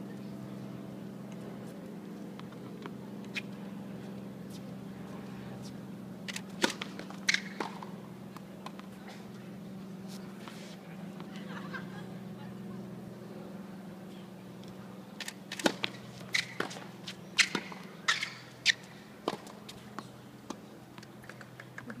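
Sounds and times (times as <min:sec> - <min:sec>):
steady low hum: 0:00.0 - 0:22.0
tennis ball struck by rackets: 0:06.3 - 0:09.0, 0:15.5 - 0:20.6
tennis ball bouncing on court: 0:06.6 - 0:09.0, 0:15.5 - 0:21.8.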